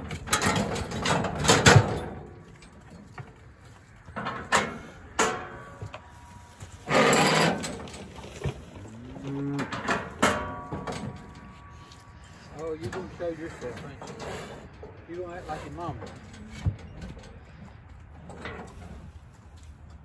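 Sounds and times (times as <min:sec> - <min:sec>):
knocks and clatter: 0:00.0 - 0:06.0, 0:09.5 - 0:11.7
cow mooing: 0:08.7 - 0:12.6.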